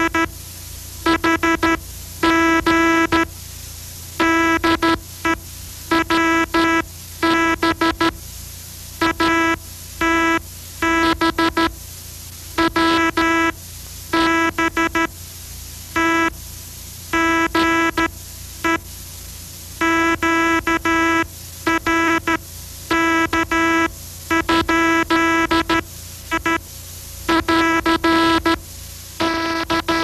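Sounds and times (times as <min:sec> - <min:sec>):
buzzing morse code tone: 0:00.0 - 0:00.3, 0:01.0 - 0:03.3, 0:04.2 - 0:08.2, 0:09.0 - 0:11.8, 0:12.6 - 0:15.1, 0:16.0 - 0:16.4, 0:17.1 - 0:18.8, 0:19.8 - 0:26.6, 0:27.3 - 0:28.6, 0:29.2 - 0:30.0.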